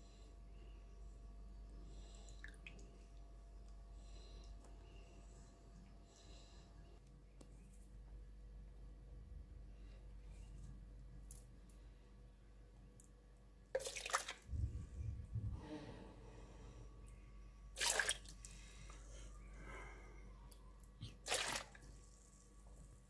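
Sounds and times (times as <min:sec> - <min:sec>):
ladle splashing in liquid: 0:13.8 - 0:14.5, 0:17.8 - 0:18.4, 0:21.2 - 0:21.8.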